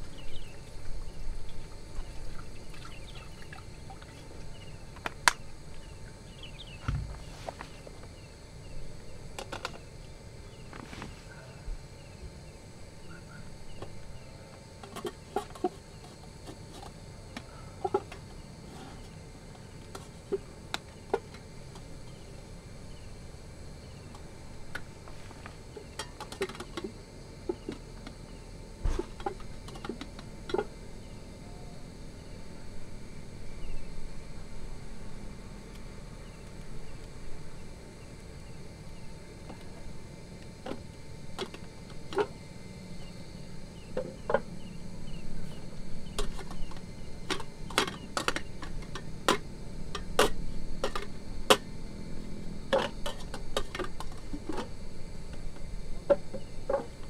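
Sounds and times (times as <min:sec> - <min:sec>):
faint chirping: 0:00.0 - 0:16.4, 0:17.0 - 0:26.0, 0:30.8 - 0:34.9, 0:41.9 - 0:48.6.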